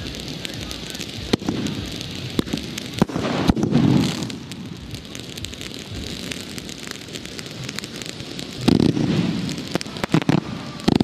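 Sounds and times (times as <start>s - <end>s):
fireworks crackling hiss: 0.0s - 11.0s
fireworks popping: 0.0s - 11.0s
fireworks rushing: 0.0s - 11.0s.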